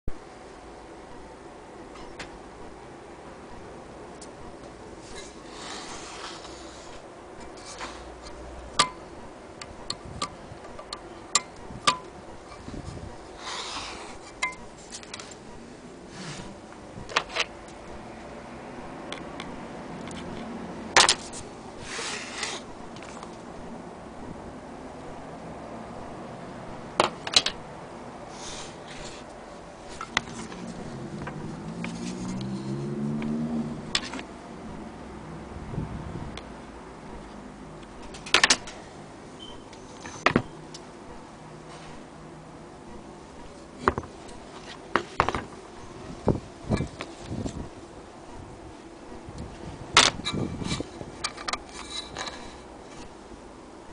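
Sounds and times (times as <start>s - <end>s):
soft rustle: 4.9s - 8.4s, 28.3s - 32.9s.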